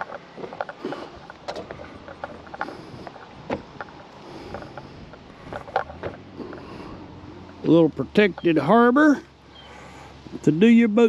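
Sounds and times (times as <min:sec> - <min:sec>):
wooden dock knocking and creaking: 0:00.0 - 0:06.3
wind: 0:00.0 - 0:11.0.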